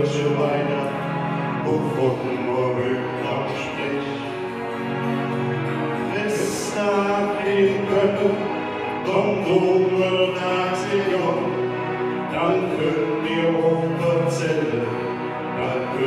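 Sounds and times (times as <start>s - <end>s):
musical accompaniment: 0.0s - 16.0s
two men singing a duet: 1.6s - 4.3s, 6.1s - 11.6s, 12.3s - 16.0s.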